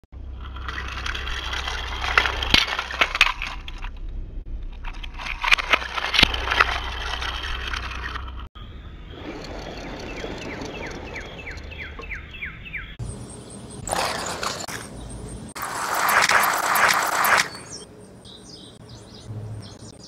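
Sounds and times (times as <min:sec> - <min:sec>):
low rumble: 0:00.1 - 0:13.8
toy cars clacking against plastic: 0:15.6 - 0:17.6
toy cars rattling down plastic track: 0:15.6 - 0:17.6.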